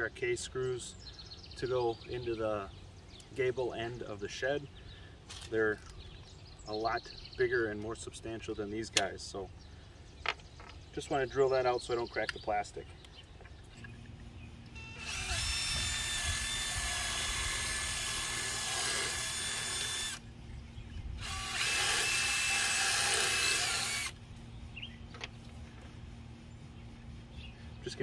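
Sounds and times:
cordless drill whining: 0:14.8 - 0:20.2, 0:21.2 - 0:24.2.

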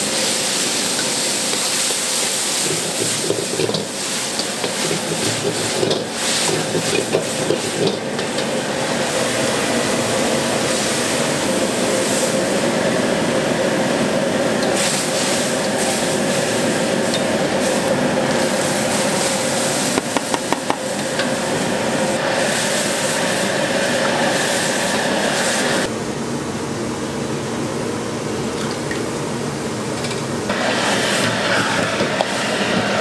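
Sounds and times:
sauce bubbling and sizzling in wok: 0:00.0 - 0:12.9
gas burner flame rushing: 0:00.0 - 0:25.9
metal ladle knocking on wok: 0:20.0 - 0:20.9.

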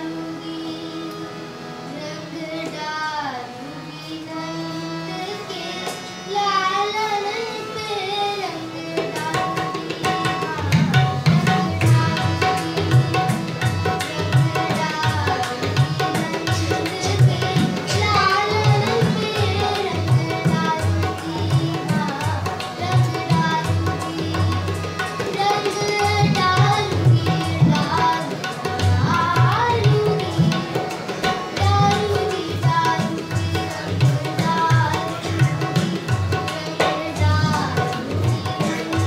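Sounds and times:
boy singing: 0:00.0 - 0:39.0
harmonium held notes: 0:00.0 - 0:39.0
tabla strokes: 0:09.0 - 0:39.0.

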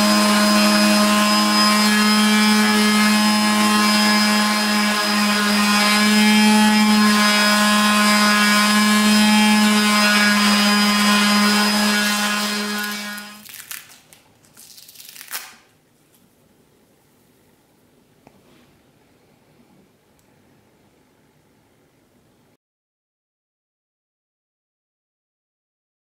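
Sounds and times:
orbital sander running: 0:00.0 - 0:13.4.

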